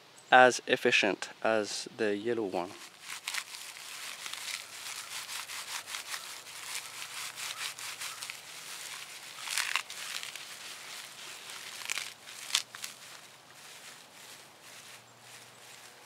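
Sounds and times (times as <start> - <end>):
bark rustling and crackling: 2.7 - 16.0
bark scrunch: 2.7 - 16.0.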